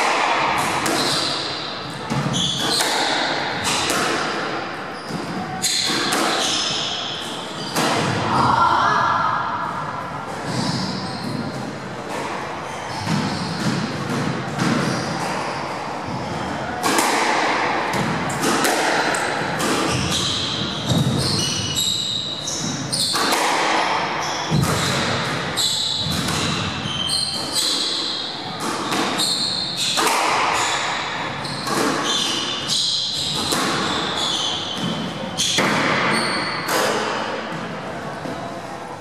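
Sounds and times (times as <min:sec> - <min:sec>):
squash ball hitting rackets and walls: 0:00.0 - 0:08.7, 0:09.6 - 0:38.5
shoes squeaking on wooden floor: 0:19.9 - 0:23.2, 0:25.5 - 0:27.7.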